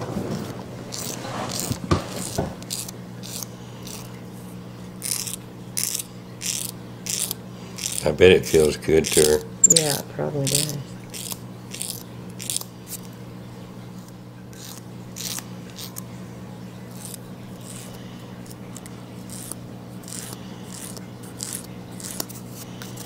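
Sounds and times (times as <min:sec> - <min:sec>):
steady low hum: 0:00.0 - 0:23.0
emery board scraping fingernails: 0:00.2 - 0:04.1.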